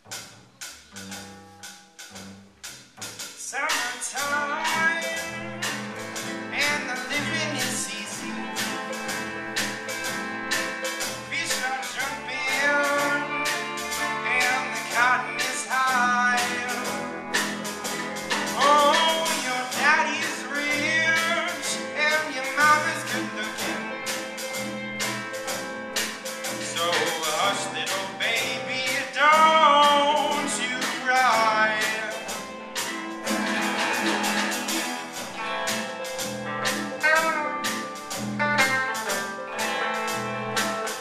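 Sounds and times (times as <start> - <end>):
live band playing: 0.0 - 41.0
person singing: 3.4 - 5.8, 6.4 - 9.9, 10.6 - 24.4, 26.6 - 32.9.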